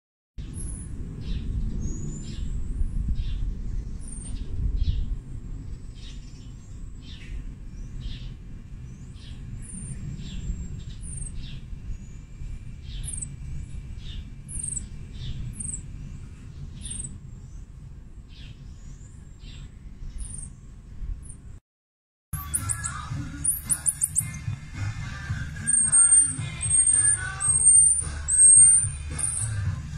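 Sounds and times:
baby marmoset chirping: 0.4 - 0.9, 4.0 - 5.0, 9.2 - 11.6, 12.9 - 13.3, 14.0 - 15.9, 16.8 - 17.2, 18.4 - 20.6, 22.4 - 29.9
low rumble: 0.4 - 21.6, 22.4 - 29.9.

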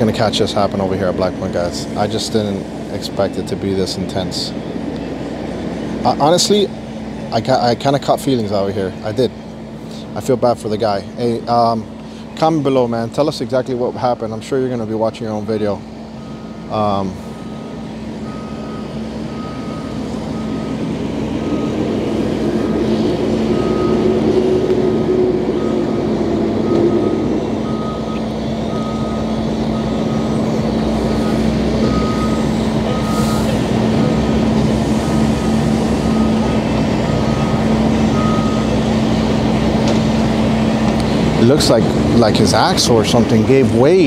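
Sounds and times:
truck engine running: 0.0 - 44.0
truck backup alarm beeping: 15.2 - 44.0.

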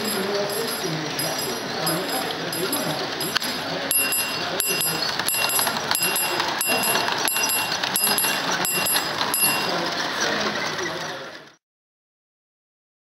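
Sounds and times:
crossing bell ringing: 0.0 - 10.1
steady background noise: 0.0 - 11.5.

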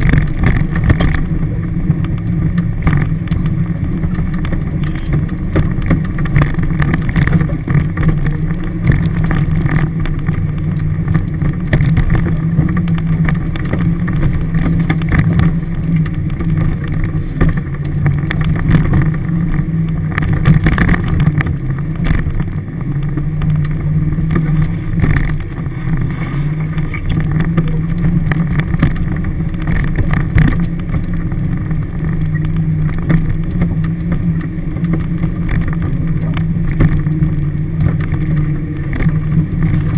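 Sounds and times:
truck engine droning under load: 0.0 - 39.9.

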